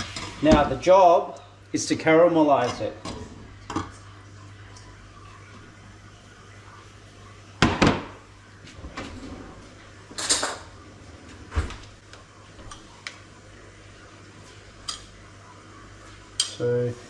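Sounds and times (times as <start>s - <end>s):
utensils and crockery clinking: 10.1s - 10.7s, 16.4s - 16.7s.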